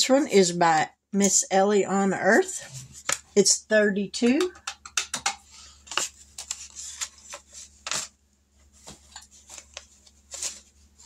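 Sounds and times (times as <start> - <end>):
paper rustling and crackling: 5.6 - 11.0.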